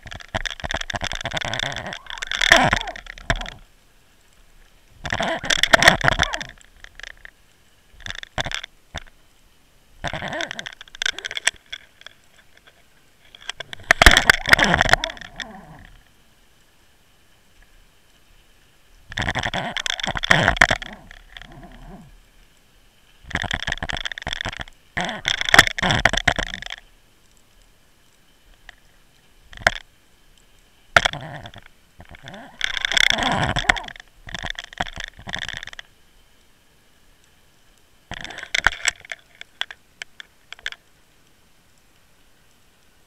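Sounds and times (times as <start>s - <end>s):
rig scraping on seabed: 0.0s - 3.7s, 4.8s - 9.1s, 10.0s - 16.1s, 19.1s - 22.3s, 23.3s - 26.9s, 31.0s - 35.9s, 38.1s - 40.8s
faint steady whine: 0.0s - 43.0s.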